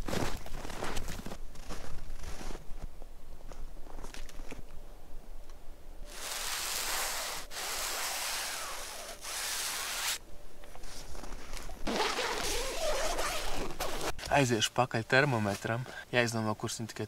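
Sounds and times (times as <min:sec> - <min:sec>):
finger scraping frosty tent fabric: 0:06.1 - 0:10.2, 0:10.9 - 0:14.1.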